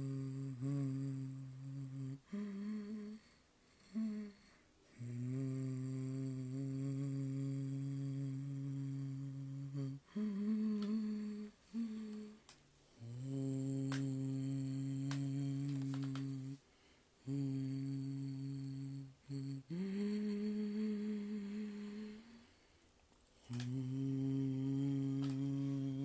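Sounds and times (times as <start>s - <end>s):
person humming low notes: 0.0s - 3.2s, 3.8s - 16.6s, 17.2s - 22.4s, 23.5s - 26.0s
faint clicks: 10.7s - 11.1s, 13.8s - 14.2s, 15.0s - 16.6s, 23.1s - 23.9s, 25.0s - 25.7s.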